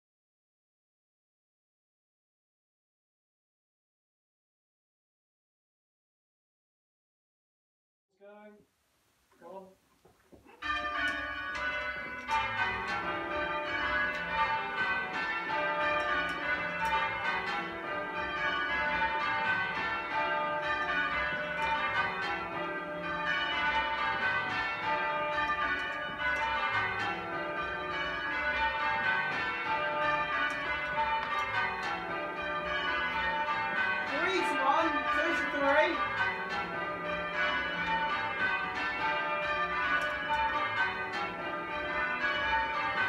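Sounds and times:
church bells change ringing: 10.5 - 43.0.

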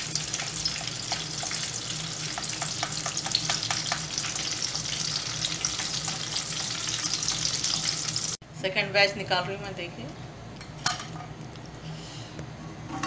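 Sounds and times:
fritters deep-frying in hot oil: 0.0 - 8.4.

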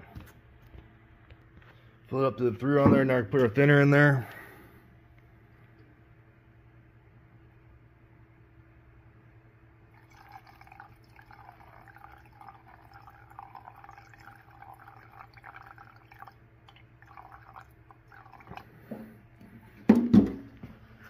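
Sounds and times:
steady low hum: 0.0 - 21.0
liquid trickling into a cup: 9.9 - 18.9.

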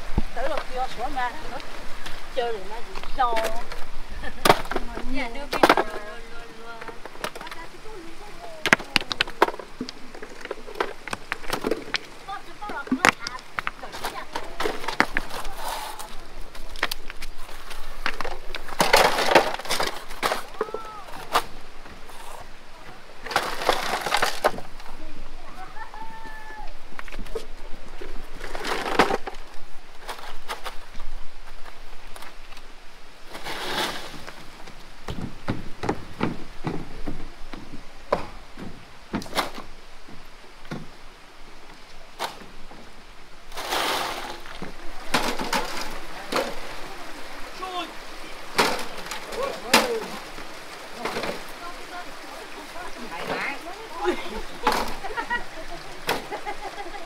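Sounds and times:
rocks knocking and clattering: 0.0 - 25.6, 26.3 - 32.6, 33.2 - 41.0, 41.9 - 57.0
rocks knocking on stone: 8.6 - 15.5, 35.0 - 39.6.

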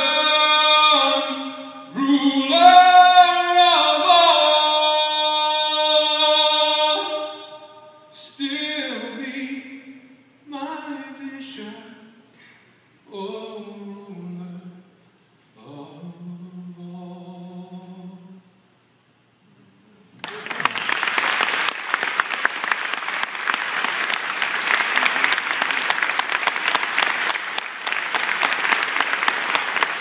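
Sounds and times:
man singing a long note: 0.0 - 12.1
congregation applauding: 20.2 - 30.0.

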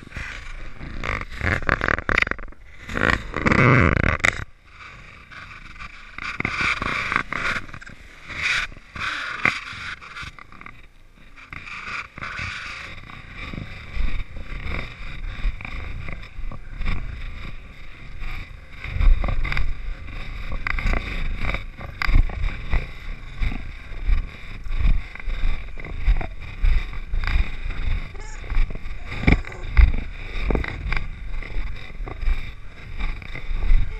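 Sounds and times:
footsteps in snow: 0.0 - 4.0, 4.7 - 33.9.

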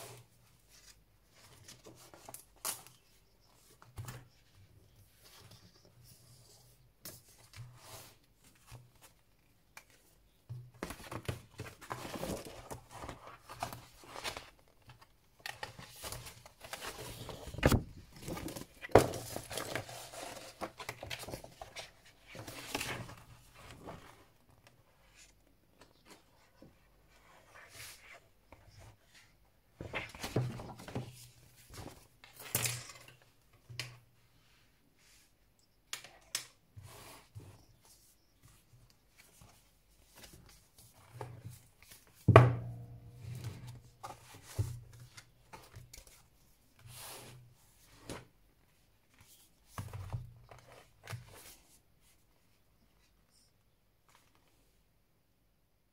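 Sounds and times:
paper and plastic rustling: 10.8 - 24.3.

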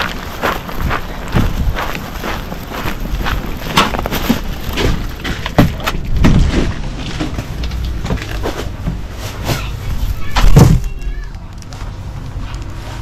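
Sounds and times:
wind rumbling on microphone: 0.0 - 9.1
footsteps: 0.0 - 10.9.

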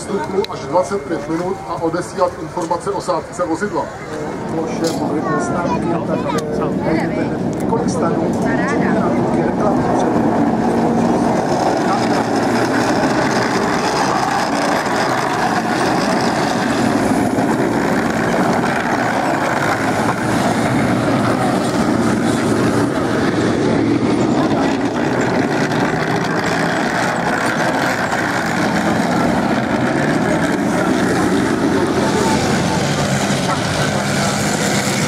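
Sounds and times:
tank engine and running gear: 9.6 - 35.0.

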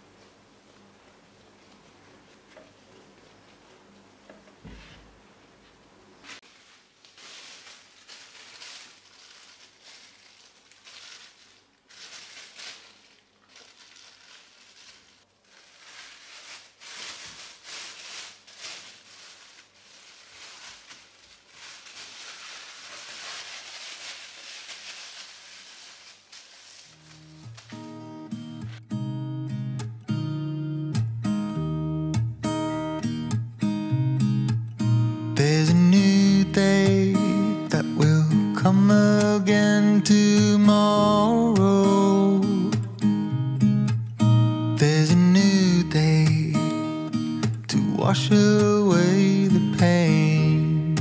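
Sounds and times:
plastic bag crinkling: 6.3 - 28.8, 35.4 - 43.0, 44.8 - 50.7.

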